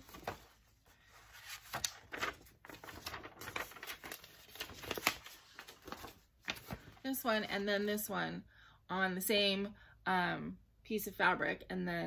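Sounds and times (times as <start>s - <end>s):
paper rustling and crinkling: 0.0s - 7.2s.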